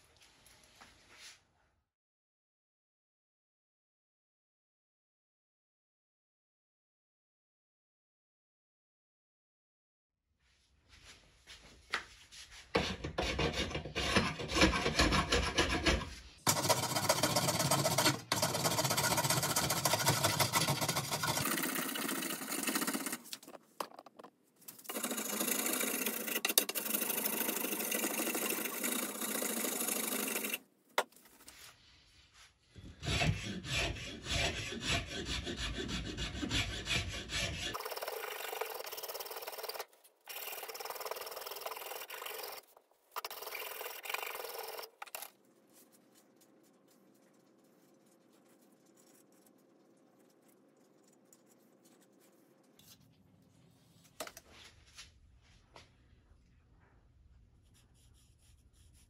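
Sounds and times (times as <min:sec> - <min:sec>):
hand file rasping on wood: 0:24.9 - 0:30.6, 0:32.8 - 0:42.6.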